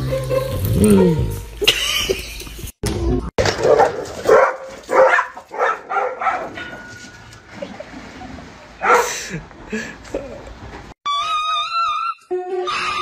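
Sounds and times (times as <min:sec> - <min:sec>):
dog barking: 0:03.5 - 0:06.8, 0:08.8 - 0:09.2.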